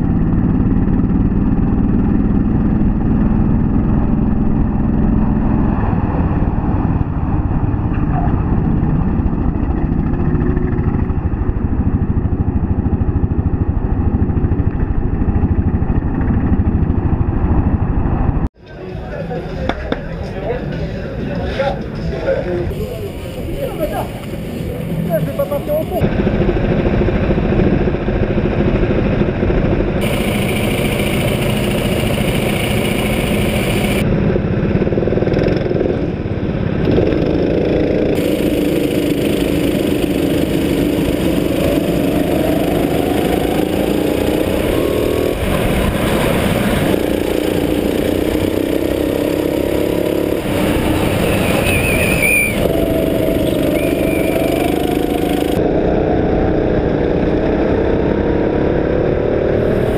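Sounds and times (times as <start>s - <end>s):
other go-karts running: 0.0s - 18.5s, 22.6s - 59.9s
go-kart engine revving: 22.7s - 59.9s.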